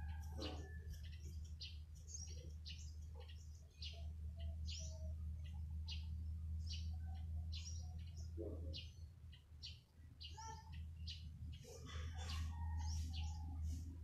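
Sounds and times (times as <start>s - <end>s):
steady low rumble: 0.0s - 10.2s
small birds chirping: 0.0s - 14.0s.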